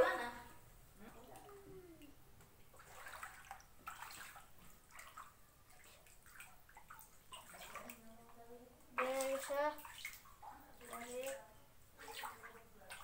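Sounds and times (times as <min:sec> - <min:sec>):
feet splashing through shallow water: 0:02.8 - 0:08.0, 0:09.0 - 0:11.4, 0:12.0 - 0:13.0.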